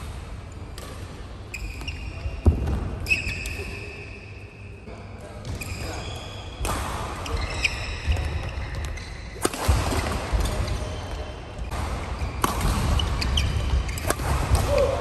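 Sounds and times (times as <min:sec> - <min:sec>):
shoes squeaking on court: 0:01.5 - 0:02.4, 0:05.4 - 0:06.6, 0:07.2 - 0:09.4, 0:10.4 - 0:14.1
racket striking shuttlecock: 0:11.7 - 0:15.0.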